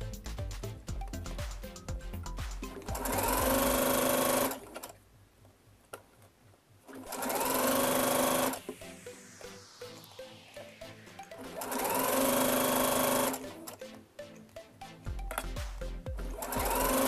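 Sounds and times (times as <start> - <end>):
background music: 0.0 - 4.8, 7.1 - 17.0
sewing machine running: 2.8 - 4.9, 6.9 - 8.6, 11.4 - 13.7, 16.3 - 17.0.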